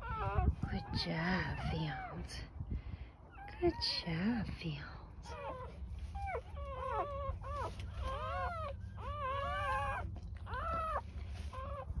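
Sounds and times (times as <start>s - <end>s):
puppies squealing and whimpering: 0.0s - 2.5s, 5.2s - 12.0s.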